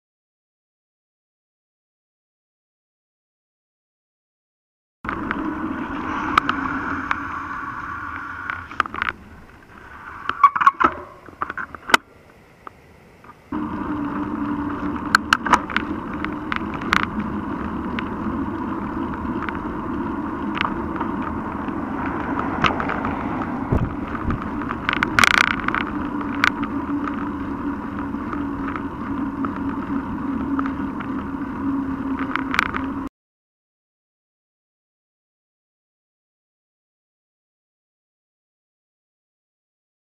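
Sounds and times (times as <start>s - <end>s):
bike tyres on pavement: 5.1s - 33.1s
bike clicks and rattles: 8.0s - 12.1s, 13.3s - 33.1s
wind noise: 13.5s - 33.1s.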